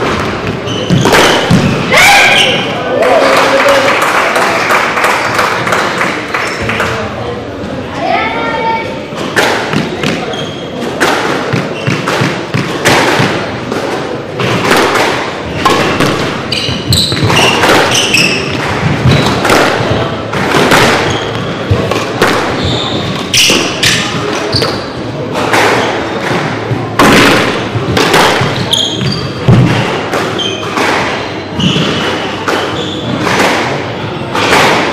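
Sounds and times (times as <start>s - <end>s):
shoes squeaking on wooden floor: 0.0s - 2.7s, 9.2s - 12.8s, 15.5s - 20.2s, 20.9s - 25.1s, 28.2s - 34.2s
squash ball hitting rackets: 0.0s - 2.7s, 9.1s - 34.9s.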